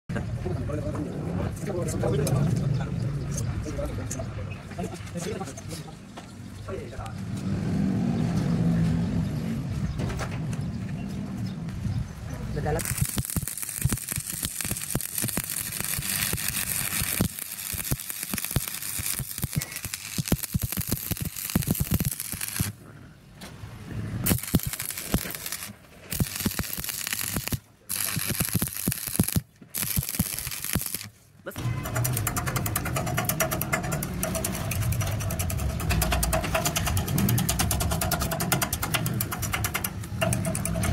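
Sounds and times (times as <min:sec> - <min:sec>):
sharp welding pops: 0:12.8 - 0:22.8, 0:24.2 - 0:31.1, 0:31.8 - 0:40.9
welding arc crackling: 0:12.8 - 0:22.8, 0:24.2 - 0:40.9.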